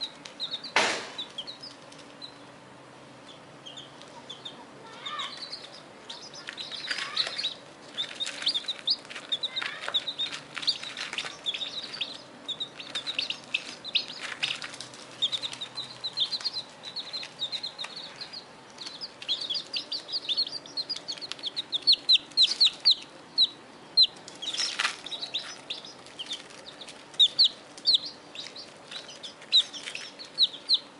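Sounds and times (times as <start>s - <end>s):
chicks peeping: 0.0s - 30.9s
scratchy rustles: 6.5s - 12.1s, 12.8s - 18.3s.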